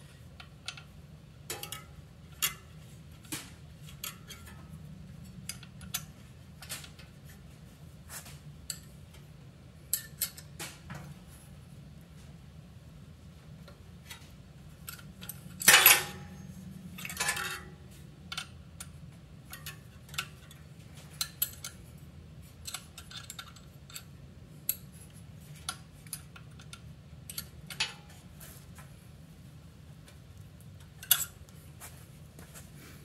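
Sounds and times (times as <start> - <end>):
metallic clicks of wrench and bolts: 0.4 - 0.9, 1.5 - 4.6, 5.2 - 7.1, 9.9 - 10.6, 14.8 - 16.4, 17.0 - 17.7, 18.3 - 21.8, 22.6 - 28.2, 30.8 - 31.5
metallic rattles: 14.1 - 21.9.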